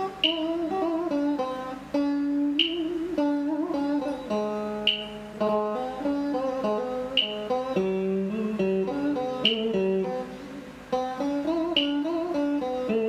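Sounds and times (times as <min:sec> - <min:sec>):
electric guitar melody: 0:00.0 - 0:13.0
sharp click: 0:00.2 - 0:00.5, 0:02.6 - 0:02.9, 0:04.8 - 0:05.2, 0:07.1 - 0:07.6, 0:09.4 - 0:09.8, 0:11.8 - 0:12.0.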